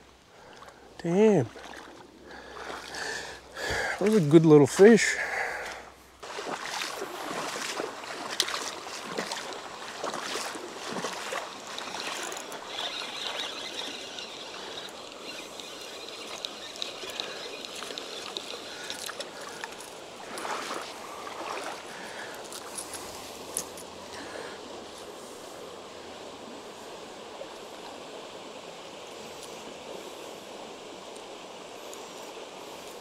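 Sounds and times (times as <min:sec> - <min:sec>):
stream water trickling: 0:00.0 - 0:33.0
small water splashes: 0:01.4 - 0:03.2, 0:05.5 - 0:22.7.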